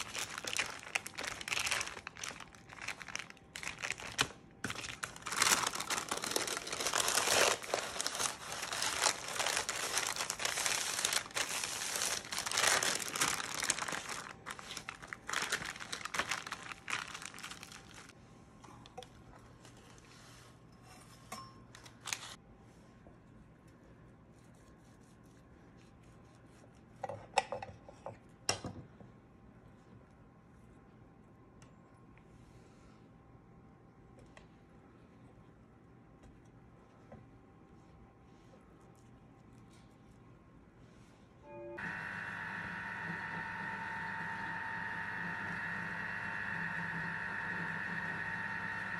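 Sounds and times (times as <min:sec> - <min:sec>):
parchment paper crinkling: 0:00.0 - 0:18.2.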